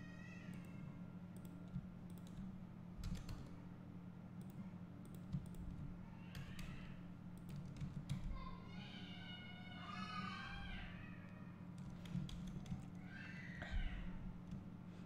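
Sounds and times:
steady low hum: 0.0s - 15.0s
keyboard key presses: 1.4s - 3.5s, 7.4s - 8.4s, 11.8s - 12.9s.

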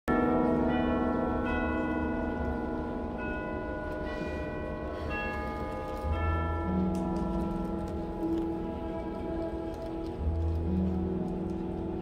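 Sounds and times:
theatre orchestra playing softly: 4.0s - 12.0s.

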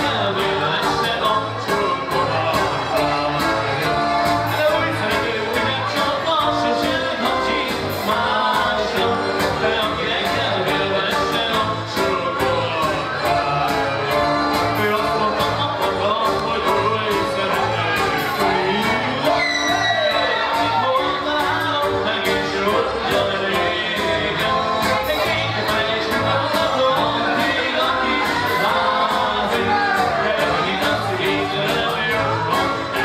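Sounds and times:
keyboard-led dance music: 0.0s - 33.0s
person singing: 0.0s - 33.0s.

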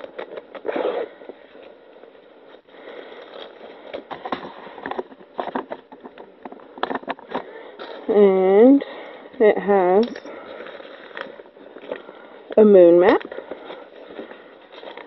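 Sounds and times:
bubble wrap crinkling: 0.0s - 6.4s, 10.2s - 12.2s.

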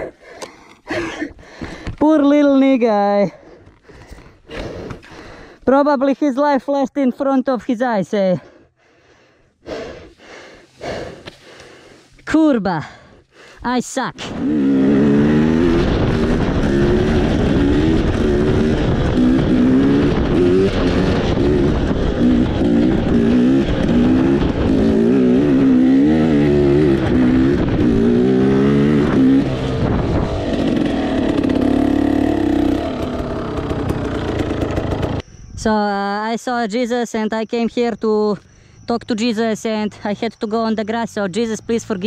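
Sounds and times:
dirt bike engine revving: 14.2s - 35.2s.

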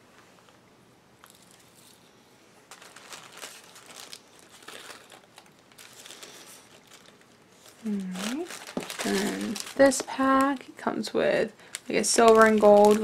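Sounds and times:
plastic bags crinkling: 2.7s - 13.0s.

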